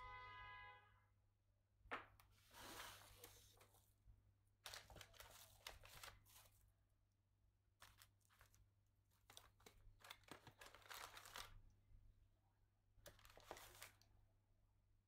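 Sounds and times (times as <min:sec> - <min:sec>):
scraping and rustling of bamboo: 0:02.4 - 0:03.7.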